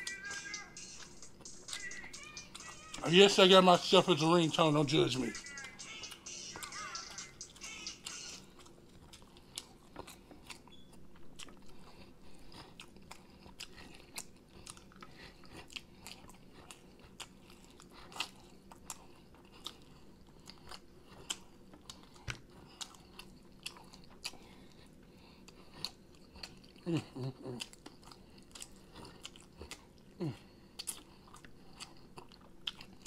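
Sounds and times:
phone ringtone music: 0:00.0 - 0:04.4, 0:05.1 - 0:08.5
chewing chicken wings: 0:00.0 - 0:33.0.

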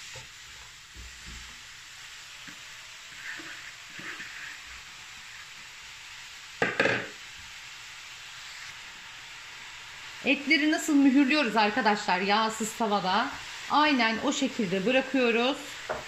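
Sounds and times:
mushrooms sizzling in hot pot: 0:00.0 - 0:16.0.

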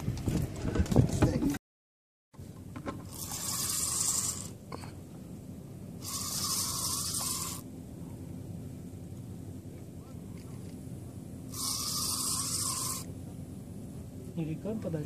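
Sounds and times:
fishing reel drag slipping: 0:03.1 - 0:04.6, 0:06.0 - 0:07.6, 0:11.5 - 0:13.1.

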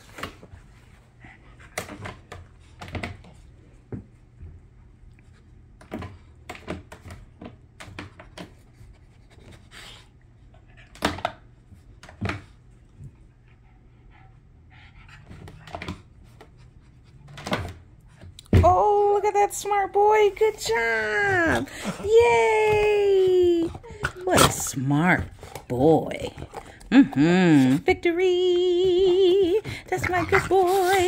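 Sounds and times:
dog panting: 0:13.0 - 0:18.4, 0:20.3 - 0:31.0.

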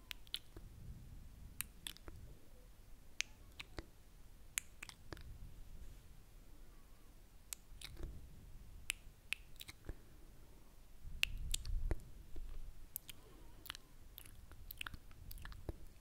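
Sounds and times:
lip and tongue clicks: 0:00.0 - 0:00.6, 0:01.6 - 0:02.2, 0:03.2 - 0:03.9, 0:04.5 - 0:05.3, 0:07.5 - 0:08.1, 0:08.9 - 0:10.0, 0:11.2 - 0:12.0, 0:12.9 - 0:16.0.

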